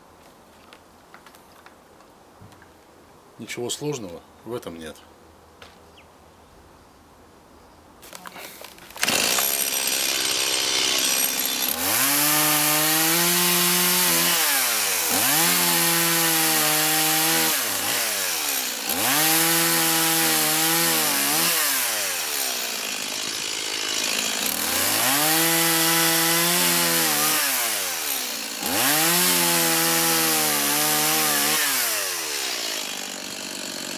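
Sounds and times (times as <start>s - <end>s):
chainsaw cutting log: 8.8s - 33.9s.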